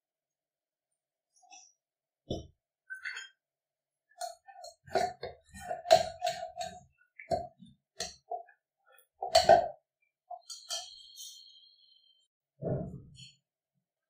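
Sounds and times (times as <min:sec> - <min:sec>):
spoon clinking and scraping metal bowl: 0:04.2 - 0:08.5, 0:09.2 - 0:11.4.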